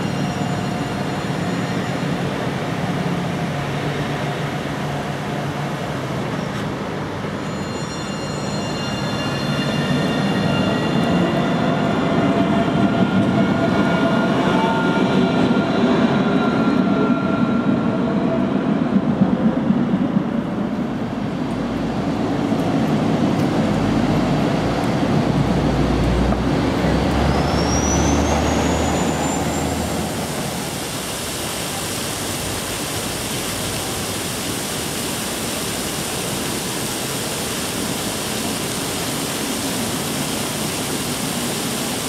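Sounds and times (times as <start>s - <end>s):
tram electric whine: 0.0s - 42.0s
tram rolling on rails: 0.0s - 42.0s
bus engine rumble: 17.6s - 40.3s.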